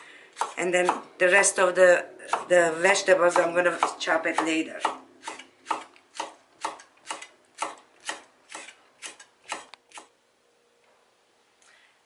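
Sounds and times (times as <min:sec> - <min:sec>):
knife chopping on wooden board: 0:00.4 - 0:01.0, 0:02.3 - 0:02.5, 0:03.3 - 0:09.7.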